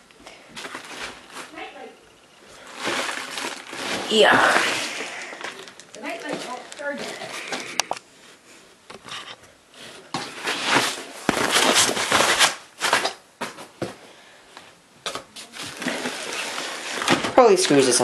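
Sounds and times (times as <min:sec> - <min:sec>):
plastic packaging crinkling: 0:00.6 - 0:01.8, 0:02.4 - 0:08.0, 0:10.3 - 0:13.2, 0:15.4 - 0:17.8.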